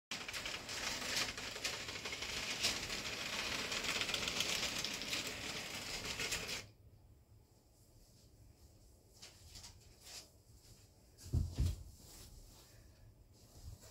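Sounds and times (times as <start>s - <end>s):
model train wheels clattering: 0.1s - 6.7s.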